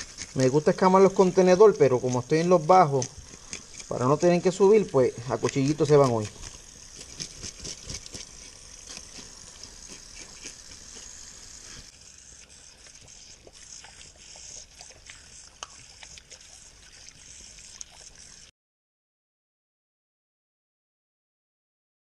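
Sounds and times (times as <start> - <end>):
knife scraping fish scales: 0.0 - 11.9
water running from tap: 0.0 - 13.8.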